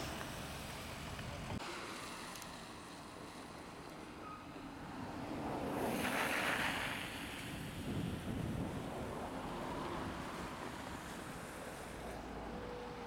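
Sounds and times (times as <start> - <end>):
passing traffic: 0.0 - 13.0
wind on microphone: 5.6 - 12.0.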